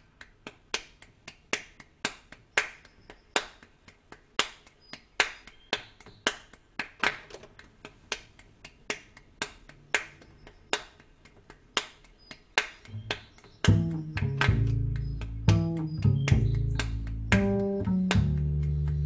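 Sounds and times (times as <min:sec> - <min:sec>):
finger snapping: 0:00.1 - 0:19.0
plucked double bass: 0:12.9 - 0:19.0.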